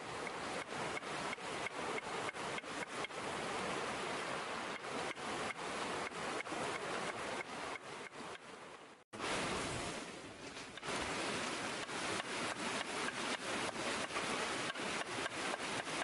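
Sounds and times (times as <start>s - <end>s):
river rushing: 0.0s - 16.0s.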